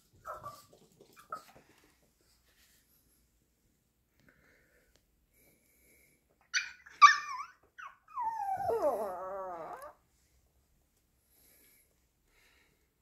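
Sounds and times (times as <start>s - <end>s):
dog yelping: 6.6s - 10.0s
dog howling: 8.2s - 10.0s.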